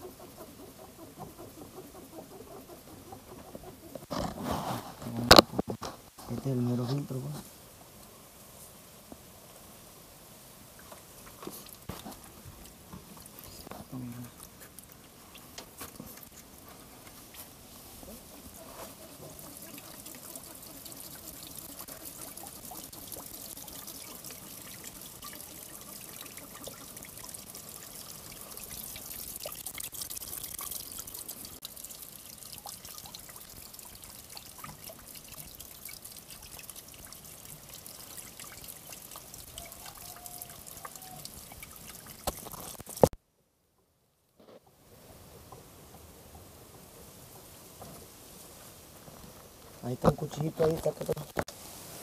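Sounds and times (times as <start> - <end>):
fuel dribbling into a bucket: 10.8 - 43.1.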